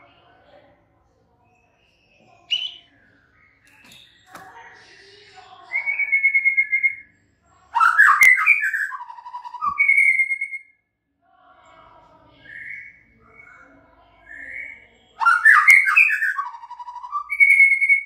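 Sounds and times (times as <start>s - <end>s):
bird singing whistled phrases: 1.5s - 4.3s, 5.7s - 7.1s, 7.8s - 10.8s, 12.4s - 13.6s, 14.2s - 18.0s.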